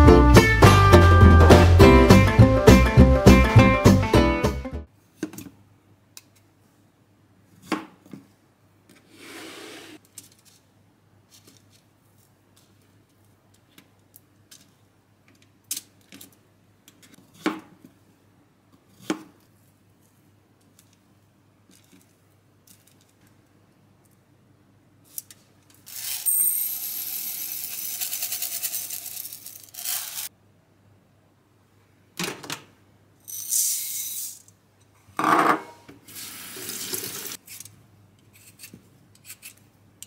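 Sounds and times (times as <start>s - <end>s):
guitar music: 0.0s - 4.9s.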